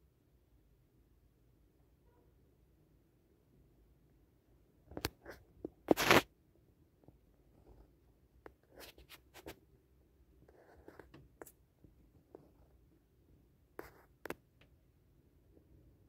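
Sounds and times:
phone handling scratches and clicks: 4.9s - 6.3s.

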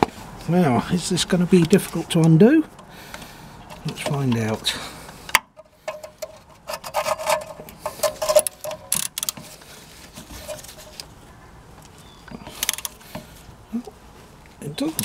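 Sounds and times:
ratchet wrench clicking: 12.6s - 13.0s.

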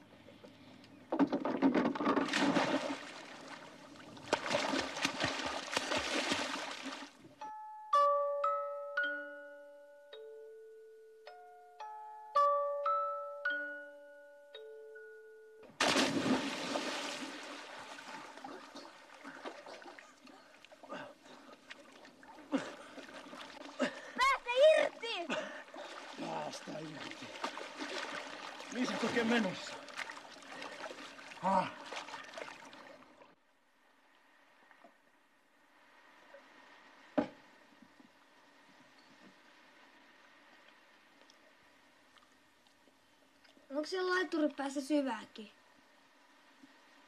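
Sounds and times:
water splashing hard: 2.2s - 7.2s, 15.8s - 20.2s, 21.8s - 33.0s.

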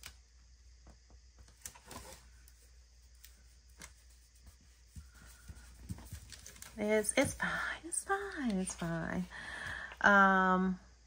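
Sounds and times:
paper stickers rustling and clicking: 1.4s - 4.2s, 5.0s - 7.5s.

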